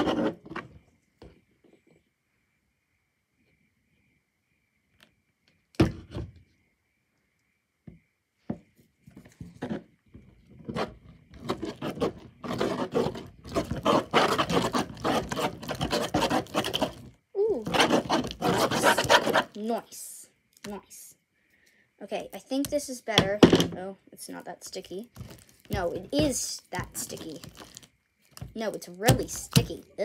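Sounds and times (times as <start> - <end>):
slime squelching: 25.1 - 29.9.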